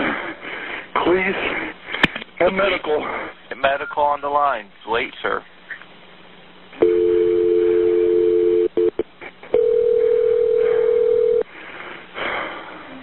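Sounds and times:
single steady telephone tone: 0:06.8 - 0:11.4
two-note telephone tone: 0:06.8 - 0:11.4.

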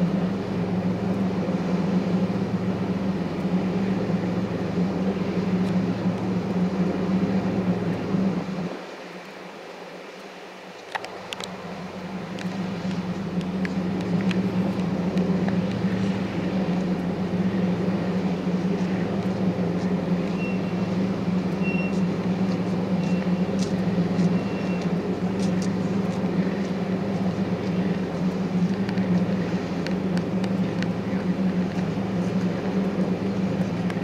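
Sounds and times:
machinery engine humming: 0:00.0 - 0:34.0
short high beeps: 0:21.6 - 0:21.9.

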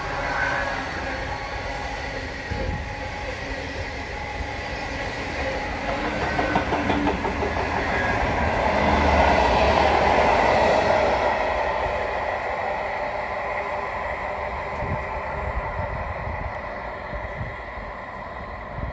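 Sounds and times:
train rumbling past: 0:00.0 - 0:18.9
train wheels clicking over rail joints: 0:05.3 - 0:10.8.

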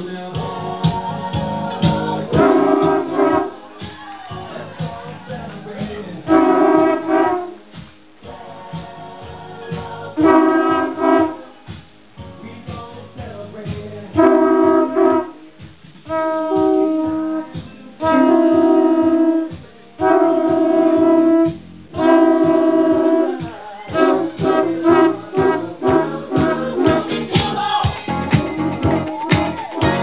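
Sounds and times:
music with steady beat: 0:00.0 - 0:30.0
conch shell blasts: 0:02.3 - 0:03.7, 0:06.3 - 0:07.6, 0:10.2 - 0:11.4, 0:14.2 - 0:15.4, 0:16.1 - 0:27.2.

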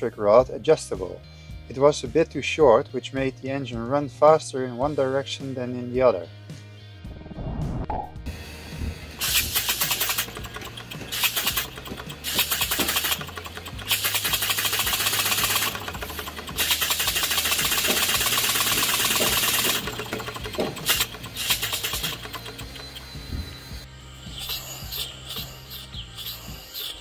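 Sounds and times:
low hum: 0:06.9 - 0:09.6
steam engine exhaust puffs: 0:08.3 - 0:23.8.

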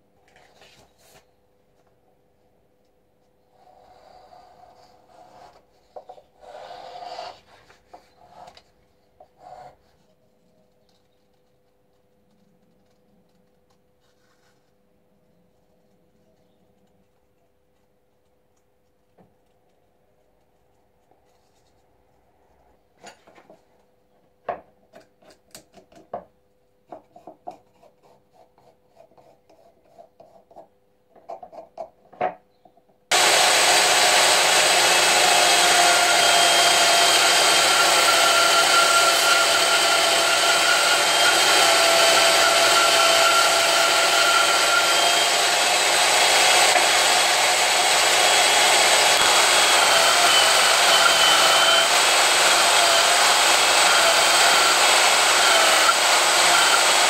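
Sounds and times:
pencil scratching: 0:27.1 - 0:30.7
band saw running: 0:33.1 - 0:57.0.

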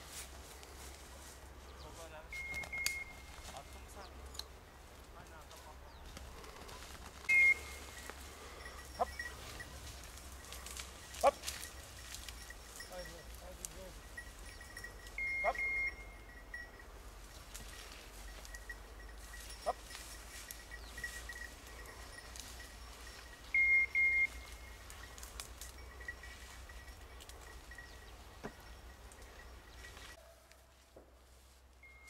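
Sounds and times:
high-pitched double beeps: 0:07.3 - 0:08.0, 0:14.8 - 0:16.7, 0:23.5 - 0:24.8.

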